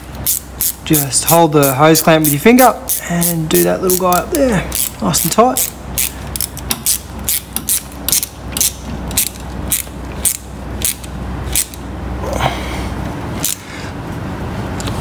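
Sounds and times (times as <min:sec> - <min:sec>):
ratchet clicking: 0:00.2 - 0:11.8.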